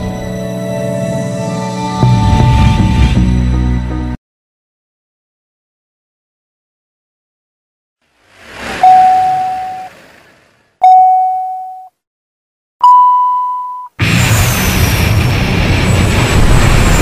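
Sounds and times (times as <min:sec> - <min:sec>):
rising whoosh: 0:08.1 - 0:10.7
loud rushing rumble: 0:08.1 - 0:10.8, 0:14.0 - 0:17.0
electronic countdown beeps: 0:08.8 - 0:09.9, 0:10.8 - 0:11.9, 0:12.8 - 0:14.0.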